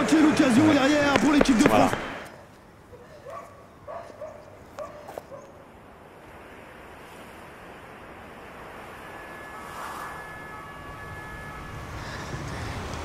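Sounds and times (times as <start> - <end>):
low steady hum: 5.5 - 13.0.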